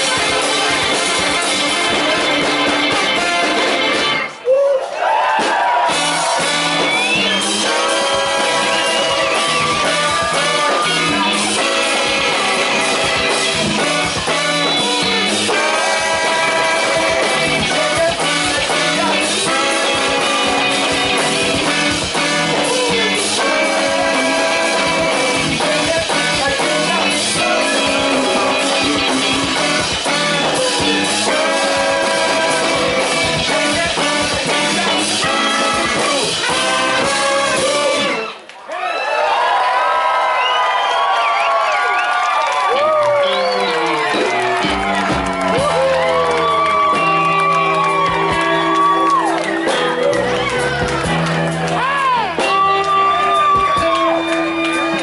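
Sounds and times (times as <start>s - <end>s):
live soul band playing: 0.0s - 4.4s, 5.6s - 38.4s, 41.0s - 55.0s
horn section: 0.0s - 38.5s, 41.0s - 55.0s
lead singer singing: 6.2s - 38.4s.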